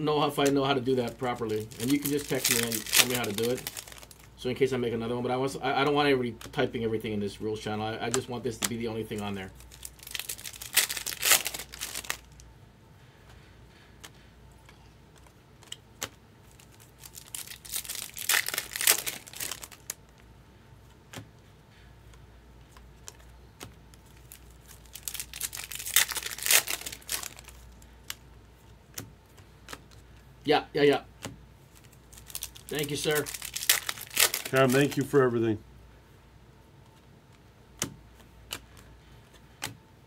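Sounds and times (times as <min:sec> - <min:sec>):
foil wrappers tearing and crinkling: 0:00.9 - 0:04.3, 0:08.6 - 0:12.4, 0:16.4 - 0:20.0, 0:24.0 - 0:28.2, 0:31.8 - 0:35.2
cards clicking: 0:08.0 - 0:09.4, 0:28.9 - 0:30.0.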